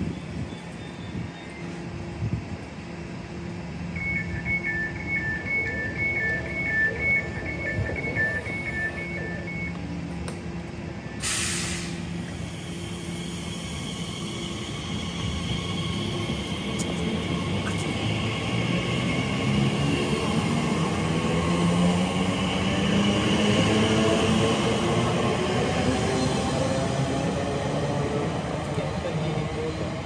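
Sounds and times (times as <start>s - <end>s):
train hum: 0.0s - 30.0s
air hiss: 11.2s - 14.2s.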